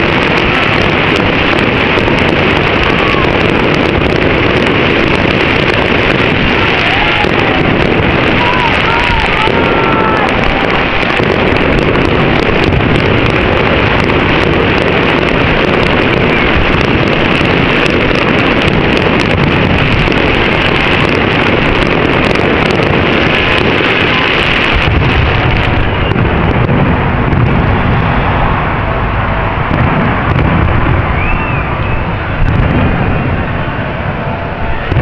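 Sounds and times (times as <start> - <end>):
fireworks bangs and crackle: 0.0 - 35.0.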